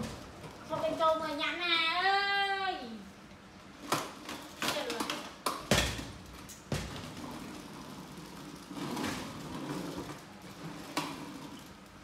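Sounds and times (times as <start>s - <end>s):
plastic wheels rolling on tiles: 3.7s - 12.0s.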